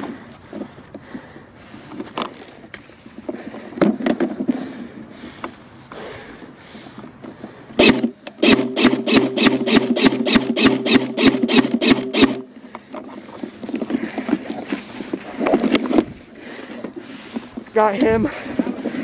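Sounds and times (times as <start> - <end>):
dry grass rustling: 0.0 - 19.0
silenced airsoft rifle firing: 7.8 - 12.4.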